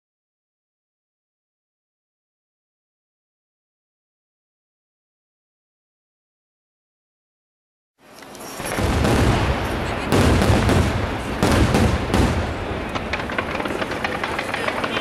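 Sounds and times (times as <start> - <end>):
sharp fireworks reports: 8.3 - 15.0
fireworks booming and crackling: 8.4 - 15.0.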